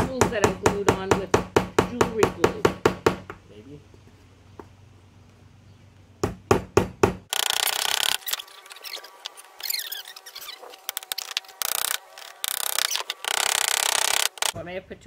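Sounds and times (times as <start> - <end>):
wooden pieces rubbing and scraping: 7.3 - 14.6.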